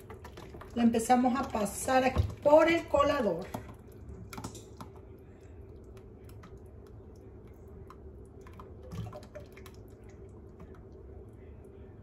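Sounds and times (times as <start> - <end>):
faint steady hum: 0.0 - 12.0
small ticks and drips: 3.5 - 11.5
liquid pouring through strainer: 3.8 - 11.0.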